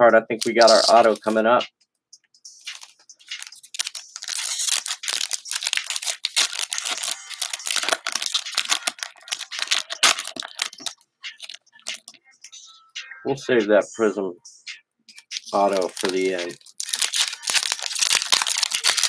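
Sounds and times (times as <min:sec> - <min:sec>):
foil wrapper tearing and crinkling: 0:02.6 - 0:12.1, 0:15.1 - 0:19.0.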